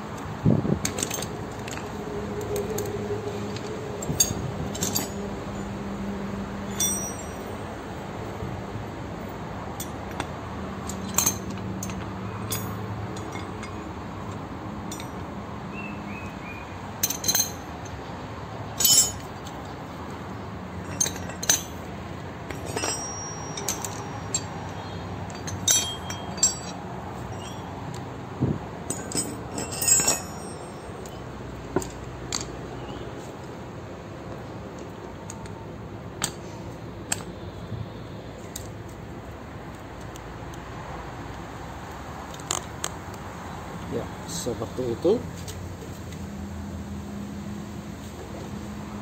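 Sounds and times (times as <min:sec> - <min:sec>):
metal tools clinking on concrete: 0:00.8 - 0:05.7, 0:06.7 - 0:07.7, 0:09.7 - 0:15.3, 0:17.0 - 0:18.0, 0:18.8 - 0:19.7, 0:20.7 - 0:28.2, 0:28.8 - 0:33.0.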